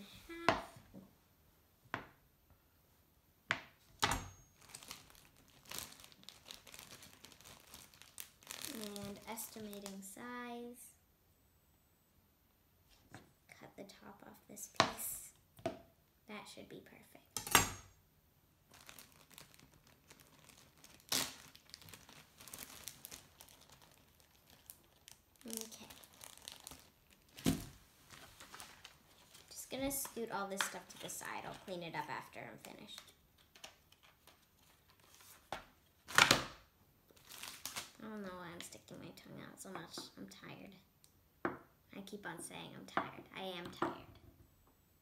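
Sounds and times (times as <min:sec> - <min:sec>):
plastic bag crinkling: 0:04.6 - 0:10.0, 0:18.7 - 0:32.1, 0:37.1 - 0:38.0.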